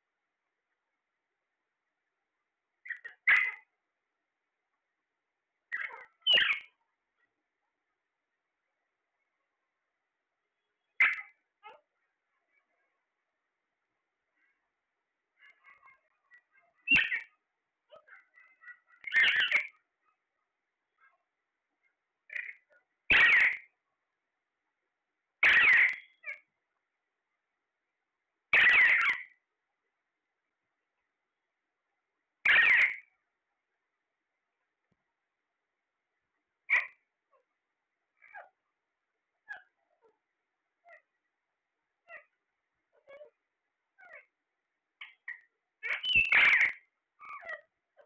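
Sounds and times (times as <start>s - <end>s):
parakeet loud calls: 2.8s - 3.7s, 5.7s - 6.7s, 11.0s - 11.8s, 16.9s - 17.3s, 17.9s - 19.8s, 22.3s - 23.7s, 25.4s - 26.4s, 28.6s - 29.4s, 32.5s - 33.1s, 36.7s - 37.0s, 44.0s - 44.3s, 45.0s - 47.6s
parakeet meow-like calls: 3.0s - 3.6s, 16.9s - 17.3s, 23.1s - 23.6s, 25.4s - 26.1s, 28.6s - 29.3s, 32.5s - 33.0s, 45.9s - 47.6s.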